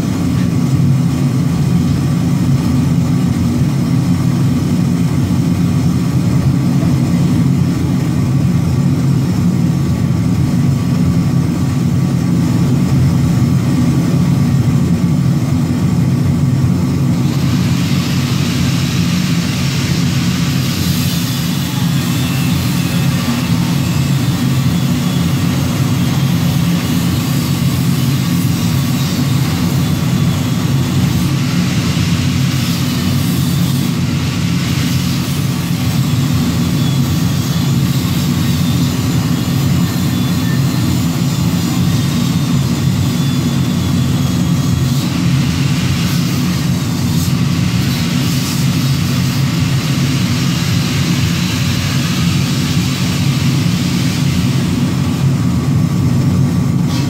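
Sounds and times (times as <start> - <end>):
heavy machinery humming: 0.0 - 57.0.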